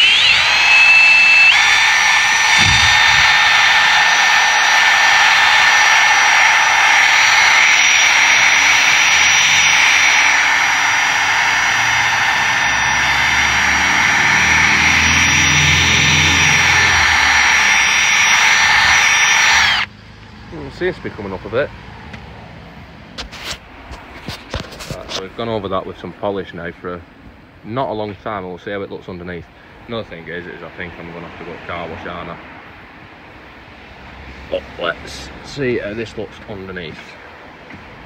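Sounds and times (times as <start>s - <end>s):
cordless drill motor whine: 0.0s - 19.9s
polishing pad hissing on plastic: 4.8s - 19.9s.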